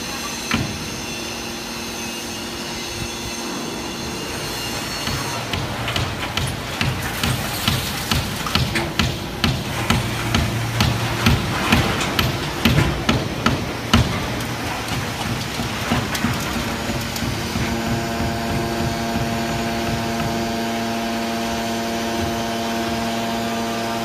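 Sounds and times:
baler machine hum with whine: 0:00.0 - 0:24.0
sharp knocks: 0:05.1 - 0:20.6.

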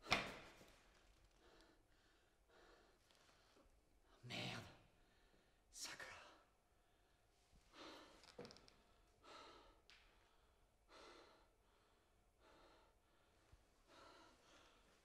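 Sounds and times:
man breathing heavily: 0:01.4 - 0:03.7, 0:09.2 - 0:15.0.

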